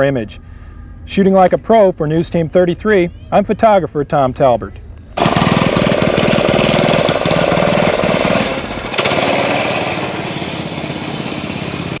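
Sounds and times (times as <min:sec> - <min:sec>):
go-kart engine running: 0:05.2 - 0:12.0.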